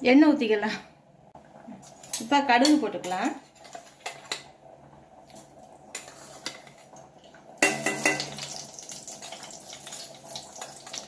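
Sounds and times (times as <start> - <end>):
metal utensil clanking: 7.6 - 8.6
mustard seeds popping in hot oil: 7.6 - 11.0.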